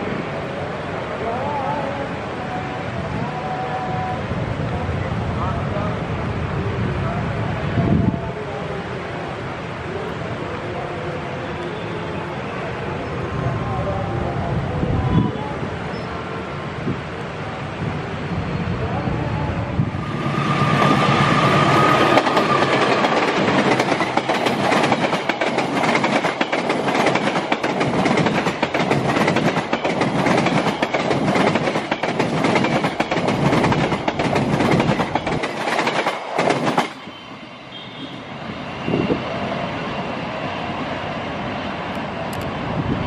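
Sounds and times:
wind on microphone: 0:16.8 - 0:24.0, 0:38.6 - 0:39.4, 0:42.4 - 0:43.0
train wheels clattering: 0:20.3 - 0:37.2.

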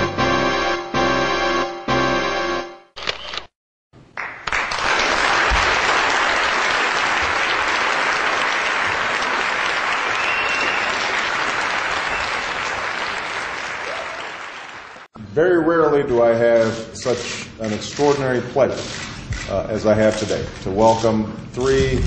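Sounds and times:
piano music: 0:00.0 - 0:02.9
audience applauding: 0:04.2 - 0:15.1.

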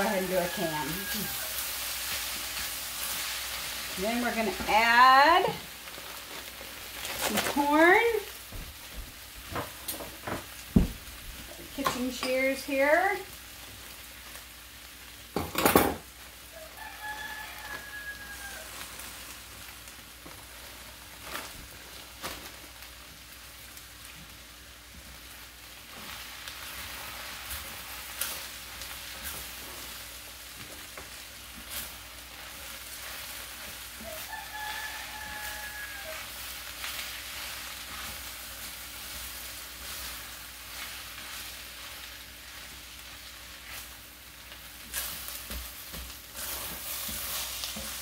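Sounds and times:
food sizzling in a skillet: 0:00.0 - 0:48.0
spatula scraping and knocking pan: 0:44.9 - 0:48.0.

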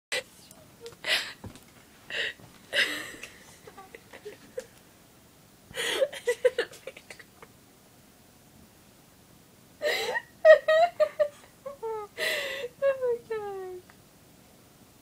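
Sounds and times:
woman sobbing: 0:00.6 - 0:01.5, 0:02.1 - 0:04.7, 0:05.7 - 0:07.4, 0:09.8 - 0:13.7
woman gasping: 0:00.9 - 0:01.5, 0:02.1 - 0:03.6, 0:05.7 - 0:06.2, 0:12.2 - 0:12.8.

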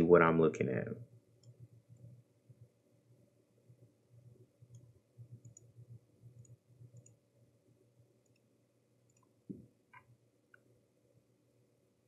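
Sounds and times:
faint computer mouse clicks: 0:01.4 - 0:02.2, 0:04.7 - 0:07.2, 0:08.2 - 0:08.5, 0:09.1 - 0:10.7.

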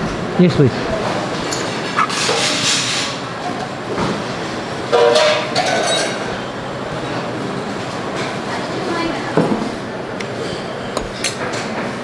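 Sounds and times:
restaurant hubbub: 0:00.0 - 0:12.0
dishes and cutlery clinking: 0:01.4 - 0:03.2, 0:04.9 - 0:06.4, 0:10.4 - 0:11.9.

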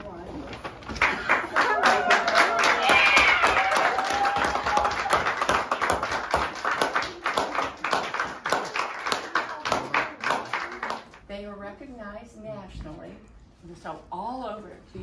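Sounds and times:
group hand clapping: 0:00.9 - 0:11.3.

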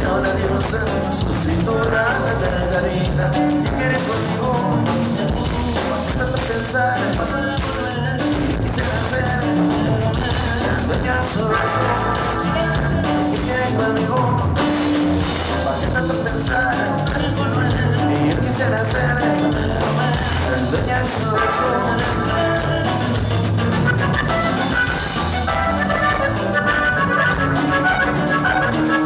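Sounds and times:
drum kit: 0:00.0 - 0:29.0
guitar: 0:00.0 - 0:29.0
button accordion: 0:20.4 - 0:29.0.

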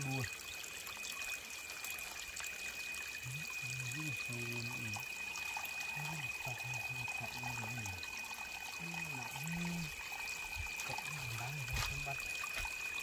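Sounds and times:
water trickling over rocks: 0:00.0 - 0:13.0
thin high tone: 0:02.9 - 0:13.0.

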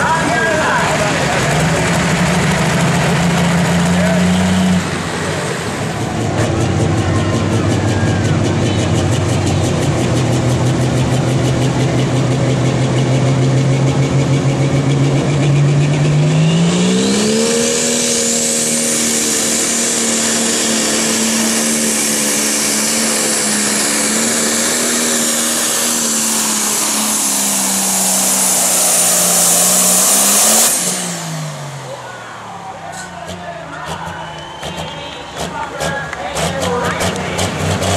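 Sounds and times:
diesel engine revving: 0:00.0 - 0:37.9
turbo whistle: 0:34.0 - 0:35.2.

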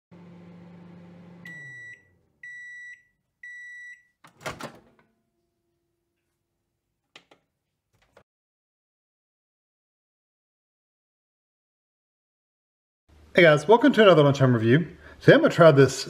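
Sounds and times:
microwave oven humming: 0:00.1 - 0:02.7
high microwave beeps: 0:01.4 - 0:04.2.

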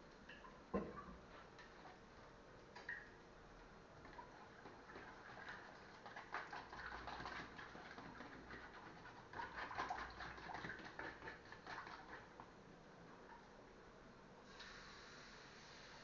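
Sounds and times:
utensil beating batter in container: 0:04.0 - 0:12.6.

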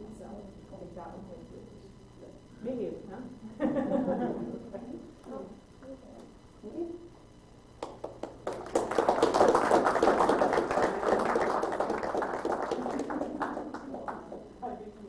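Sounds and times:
audience applauding: 0:07.8 - 0:14.5.

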